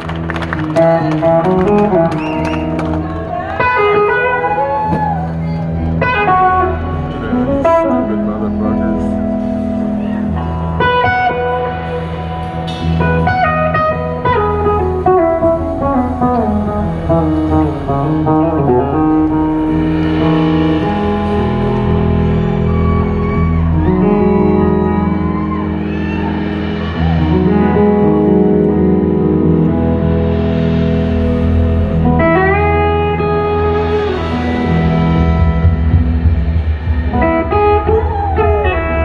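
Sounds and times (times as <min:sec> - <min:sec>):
electric guitar: 0:00.0 - 0:39.0
steady low bass: 0:05.0 - 0:39.0
slide guitar notes: 0:05.3 - 0:36.2.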